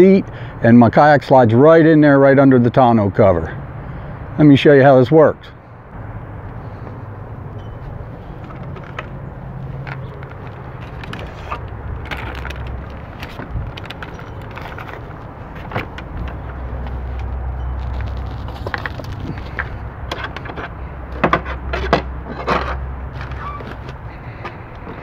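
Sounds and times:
steady low rumble: 0:05.4 - 0:21.2.

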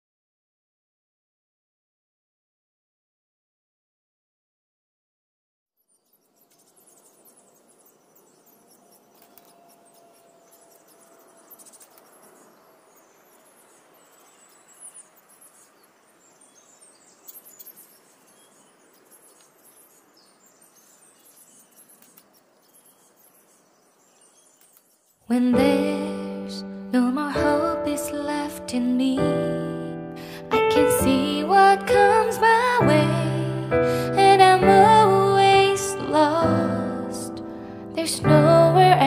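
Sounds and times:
songbirds chirping: 0:05.8 - 0:39.0
soft steady hiss: 0:06.0 - 0:33.6.

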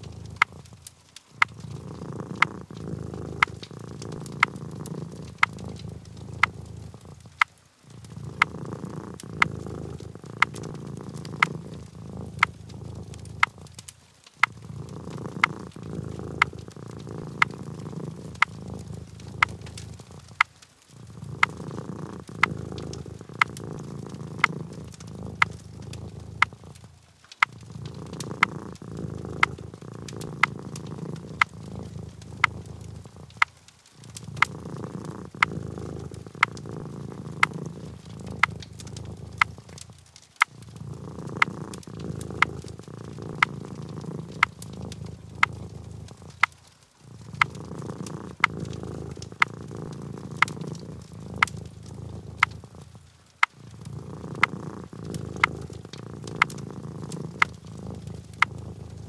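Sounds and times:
sharp clicks: 0:00.0 - 0:28.8
cat purring: 0:00.0 - 0:59.0.

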